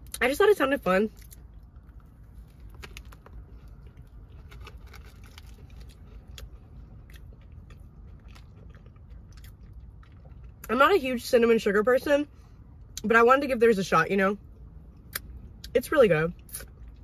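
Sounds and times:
low steady hum: 0.0 - 17.0
person chewing: 1.2 - 10.7.

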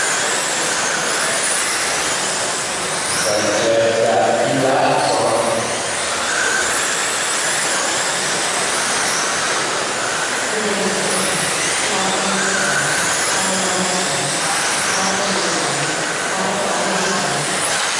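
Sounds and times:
electric motors whining: 0.0 - 17.9.

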